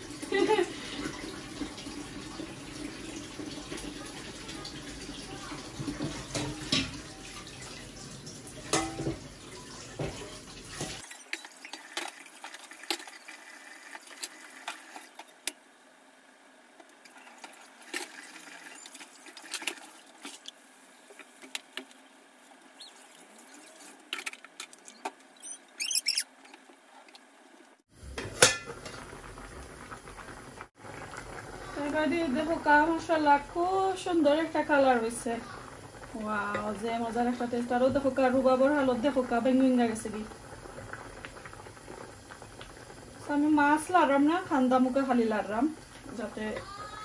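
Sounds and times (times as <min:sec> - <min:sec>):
tap water running: 0:00.0 - 0:15.6, 0:16.7 - 0:47.0
pot lid clanking: 0:28.2 - 0:29.0.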